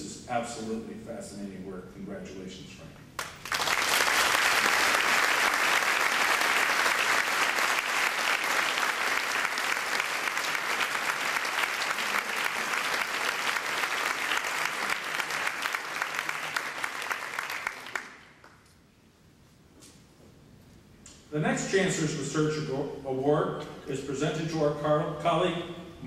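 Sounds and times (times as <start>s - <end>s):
audience applauding: 3.2s - 18.6s.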